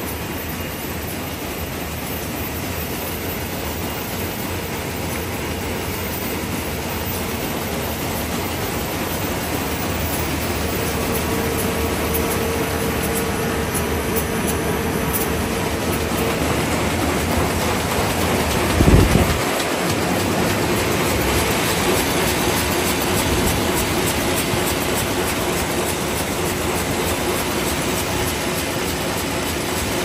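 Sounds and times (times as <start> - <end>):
paper bag machine whirring: 10.5 - 24.9.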